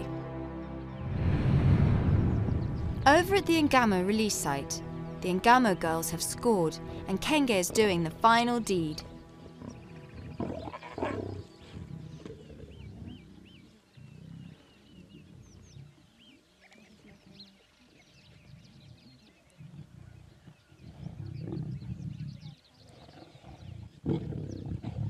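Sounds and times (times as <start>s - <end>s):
lionesses growling low: 9.4s - 25.0s.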